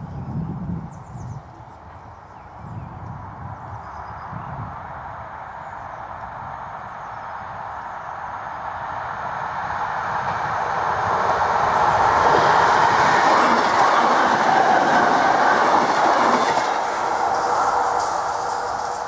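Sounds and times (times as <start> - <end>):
train wheels rushing on rails: 6.0 - 19.0.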